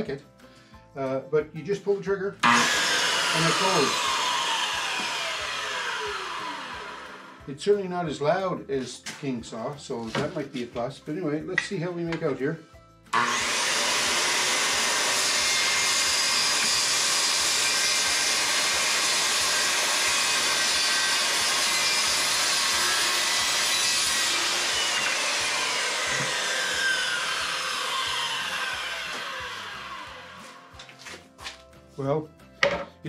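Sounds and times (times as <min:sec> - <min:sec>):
circular saw cutting plywood: 0:02.4 - 0:07.5, 0:13.1 - 0:31.2
saw motor winding down: 0:02.4 - 0:07.5, 0:13.1 - 0:31.2
saw knocking on table: 0:32.6 - 0:33.0.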